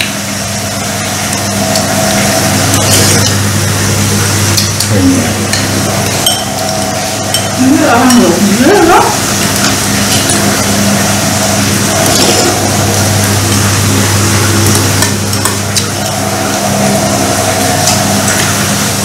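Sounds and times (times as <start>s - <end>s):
steady hum and hiss: 0.0s - 19.0s
sliding wavering tone: 0.3s - 19.0s
chopsticks clicking on bowls: 4.5s - 8.4s, 14.6s - 16.6s.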